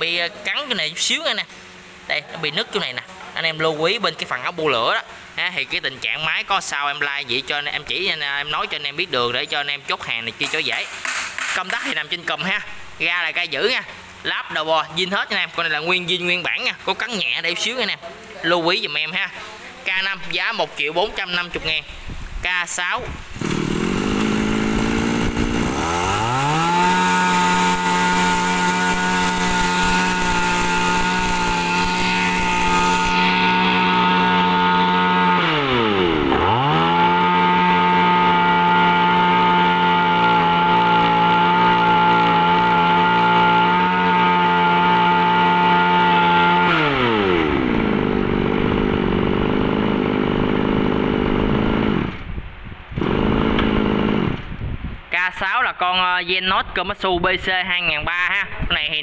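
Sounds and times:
brush cutter engine revving: 23.2s - 52.3s, 53.0s - 54.5s.

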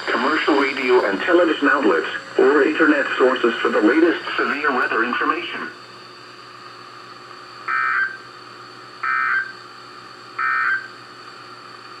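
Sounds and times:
digital data tone bursts: 7.7s - 8.2s, 9.0s - 9.6s, 10.4s - 10.9s.

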